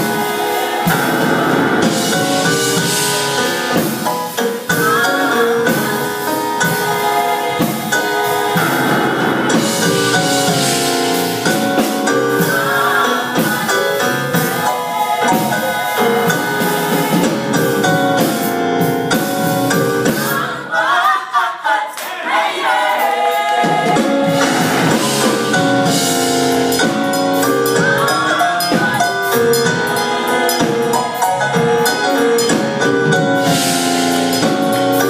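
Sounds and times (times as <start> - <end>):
drums: 0.0 - 20.7, 22.4 - 35.0
gospel choir singing: 0.0 - 35.0.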